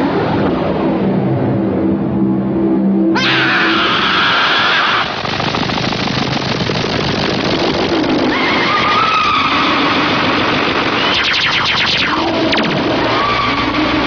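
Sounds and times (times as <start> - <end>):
dense rattling buzz: 3.2 - 14.0
quick run of clicks: 5.0 - 9.3
gliding whistle-like tones: 8.4 - 14.0.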